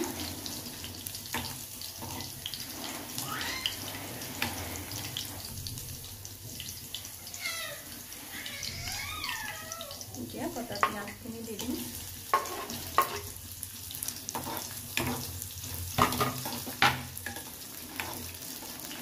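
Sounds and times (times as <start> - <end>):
food sizzling in hot oil: 0.0 - 19.0
gliding pitched calls: 3.2 - 4.0.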